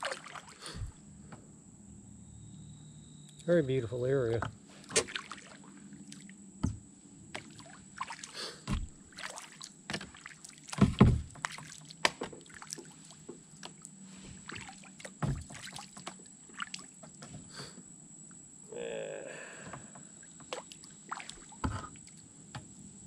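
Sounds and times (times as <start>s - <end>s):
paddle splashing in water: 0.0s - 1.0s, 4.7s - 6.3s, 7.3s - 17.0s, 19.9s - 22.3s
knocks against plastic kayak: 10.8s - 12.4s
water dripping: 19.9s - 22.3s.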